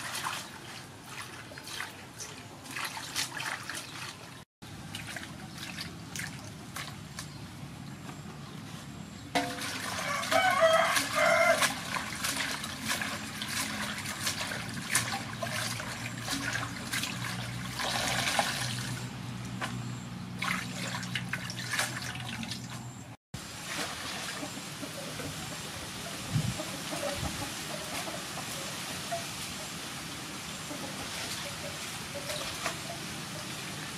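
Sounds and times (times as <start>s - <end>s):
hands rinsing leafy greens: 0.0s - 7.3s, 9.4s - 19.0s, 20.4s - 22.9s
water splashing in metal basin: 0.0s - 7.3s, 9.4s - 19.1s, 20.4s - 22.9s, 23.5s - 24.7s, 31.0s - 33.9s.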